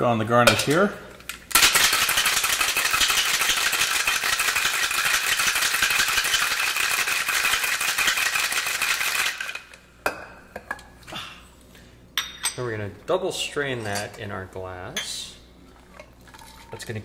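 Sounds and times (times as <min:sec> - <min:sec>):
ice rattling in cocktail shaker: 0:01.5 - 0:09.7.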